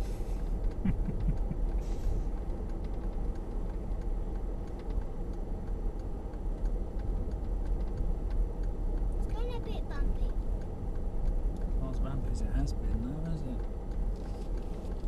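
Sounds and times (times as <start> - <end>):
vehicle rumble from inside cabin: 0.0 - 15.0
faint ticks: 0.6 - 11.8.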